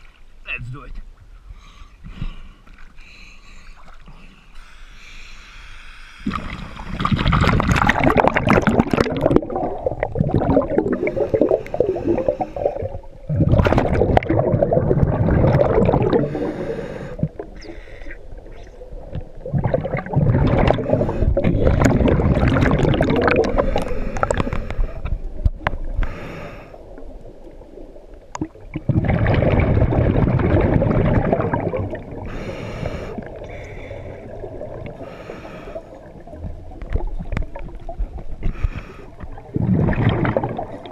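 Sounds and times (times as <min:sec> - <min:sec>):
regulator inhalation hiss: 0:04.4 - 0:07.1, 0:16.3 - 0:18.2, 0:26.0 - 0:26.8
bubbling underwater exhalations: 0:06.2 - 0:27.1, 0:28.3 - 0:35.2, 0:36.0 - 0:40.9.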